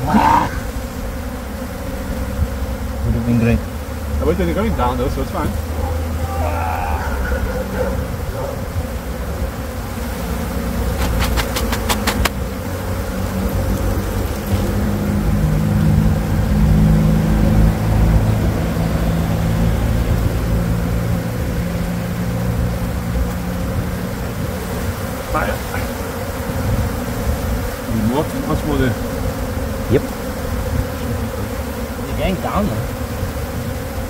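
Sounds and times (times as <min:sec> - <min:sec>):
bees buzzing: 0:00.0 - 0:34.0
sharp clicks: 0:11.0 - 0:12.4.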